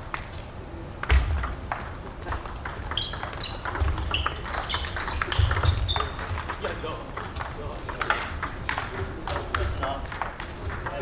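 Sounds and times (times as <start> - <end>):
table tennis ball clicking: 1.0 - 11.0
short high squeaks: 3.0 - 6.2.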